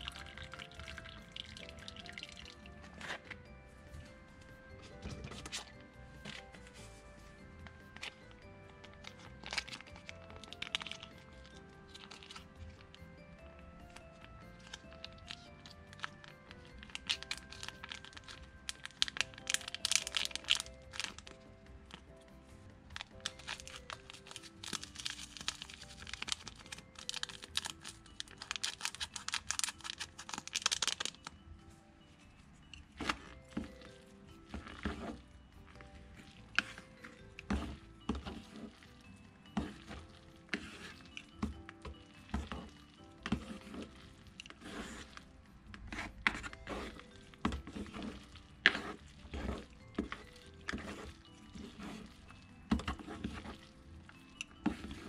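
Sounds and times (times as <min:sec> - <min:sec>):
plastic packet crinkling and tearing: 0:00.0 - 0:03.5, 0:07.9 - 0:13.0, 0:13.9 - 0:21.5, 0:22.9 - 0:31.4
wet noodles moving: 0:00.0 - 0:13.2, 0:13.8 - 0:31.4, 0:32.0 - 0:55.0
background music: 0:00.0 - 0:55.0.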